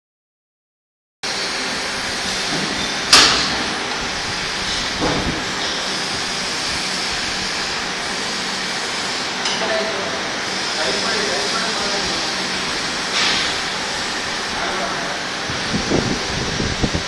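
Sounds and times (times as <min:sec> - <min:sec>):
workshop machine hiss: 0:01.3 - 0:17.0
sharp metallic clank: 0:02.5 - 0:03.7.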